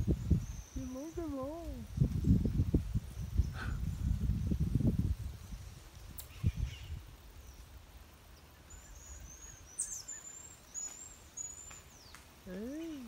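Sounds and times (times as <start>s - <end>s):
faint outdoor background: 0.0s - 13.0s
high whistled calls: 8.6s - 13.0s.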